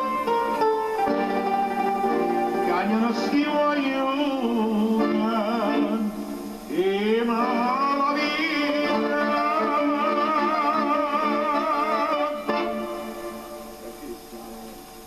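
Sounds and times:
band accompaniment: 0.0s - 14.3s
man singing a ballad: 2.7s - 12.4s.

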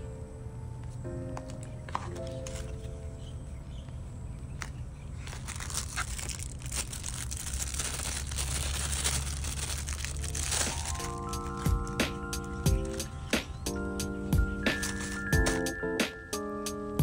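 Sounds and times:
packaging clicks: 1.4s - 3.0s, 4.6s - 13.3s, 14.7s - 15.8s
plastic bag crinkling: 2.0s - 3.0s, 5.1s - 13.3s, 14.5s - 15.8s.

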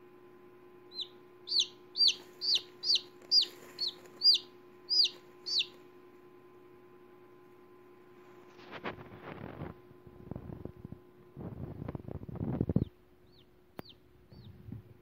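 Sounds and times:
faint steady hum: 0.0s - 15.0s
chick peeping: 0.9s - 5.8s, 12.4s - 14.8s.

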